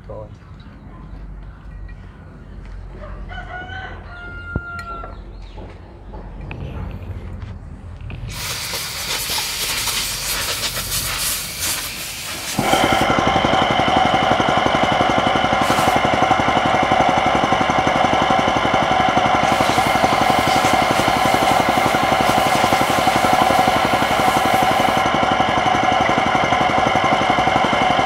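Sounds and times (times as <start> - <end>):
loud hiss: 8.3 - 13.0, 15.6 - 16.0, 19.4 - 25.0
machine whine: 9.6 - 28.0
machine rattling: 12.5 - 27.6.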